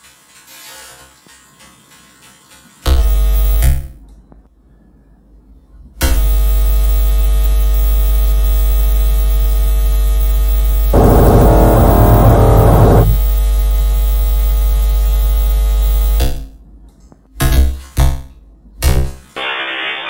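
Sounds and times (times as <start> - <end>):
loud electronic buzzing drone: 10.2 - 16.2.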